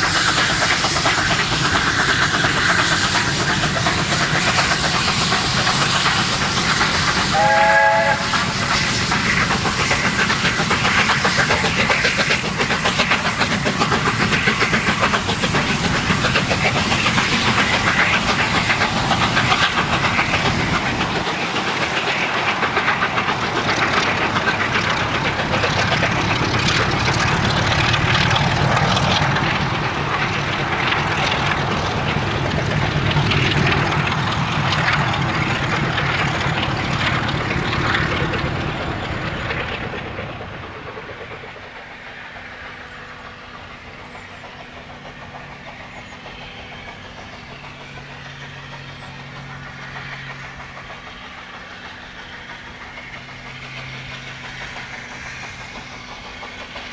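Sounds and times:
steam locomotive exhaust beating: 0.0 - 56.9
train rumbling on rails: 0.0 - 56.9
steam whistle: 7.3 - 8.4.

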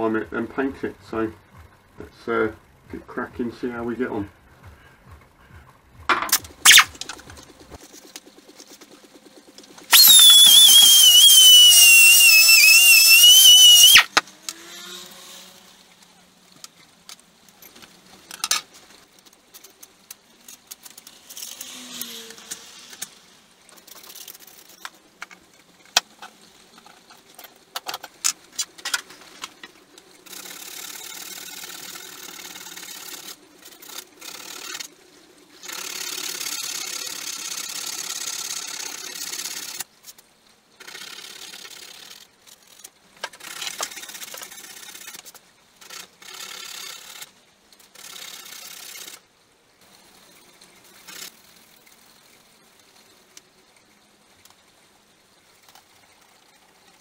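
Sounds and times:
pneumatic hand tool running: 6.6 - 6.9, 9.9 - 14.1.

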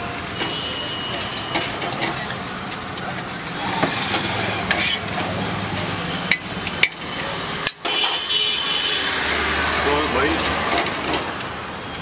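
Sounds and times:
egg sizzling on a griddle: 0.0 - 12.0
metal spatula scraping a pan: 3.5 - 7.2.

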